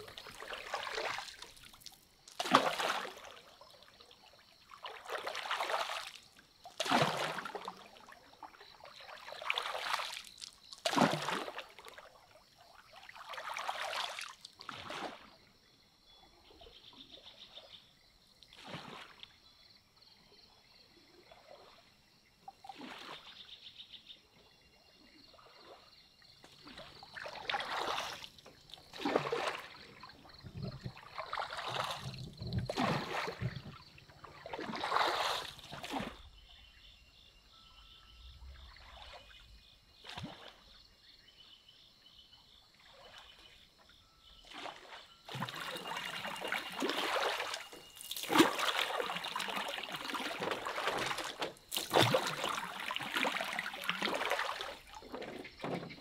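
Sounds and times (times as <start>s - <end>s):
water splashing and trickling: 0.0s - 15.7s, 18.4s - 19.7s, 20.4s - 40.9s, 42.4s - 56.0s.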